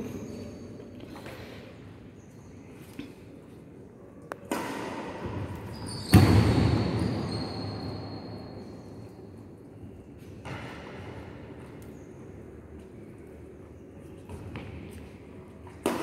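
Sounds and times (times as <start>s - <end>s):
racket striking shuttlecock: 4.3s - 5.7s, 15.8s - 16.0s
loud echoing thud: 6.1s - 7.1s.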